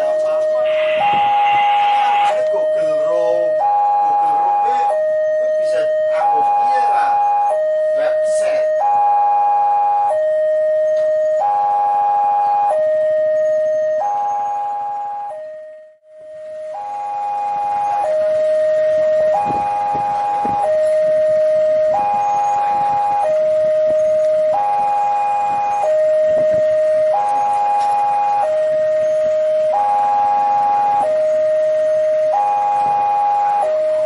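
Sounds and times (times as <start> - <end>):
two-tone siren: 0.0 - 34.0.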